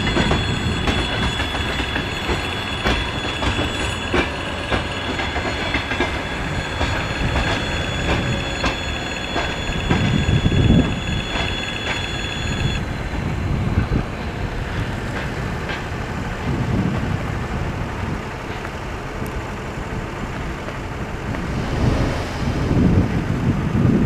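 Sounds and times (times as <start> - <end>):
road traffic: 0.0 - 24.0
wind rumbling on microphone: 12.6 - 24.0.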